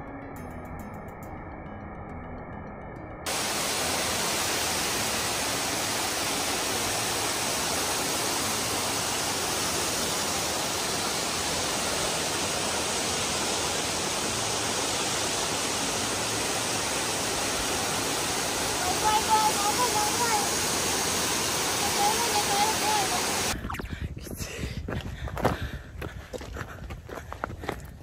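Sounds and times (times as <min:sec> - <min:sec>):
background music: 0:00.0 - 0:10.2
waterfall rushing: 0:03.3 - 0:23.6.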